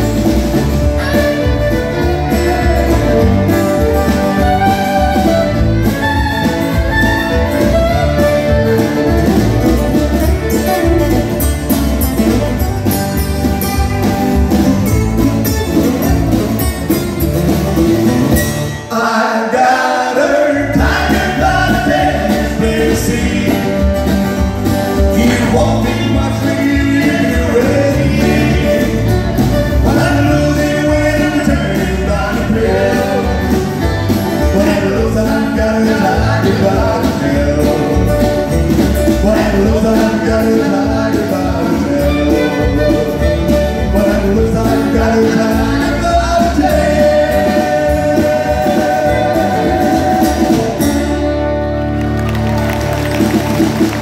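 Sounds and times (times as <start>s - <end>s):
fiddle: 0.0s - 18.6s, 21.0s - 54.0s
bass: 0.0s - 19.0s, 20.3s - 54.0s
strummed acoustic guitars: 0.0s - 54.0s
man singing into a microphone: 18.9s - 23.9s, 25.1s - 33.6s, 34.4s - 38.4s, 39.1s - 51.1s.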